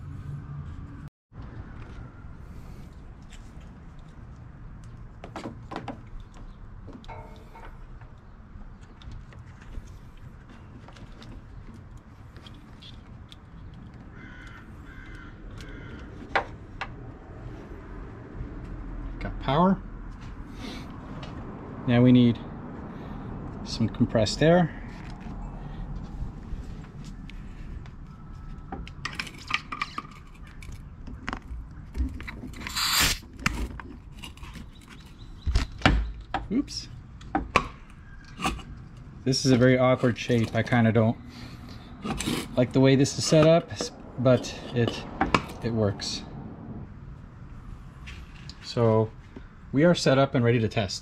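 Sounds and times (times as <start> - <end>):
metal coupler clicking and clinking: 7.0 - 7.9
bird cawing: 14.1 - 16.4, 37.8 - 38.8.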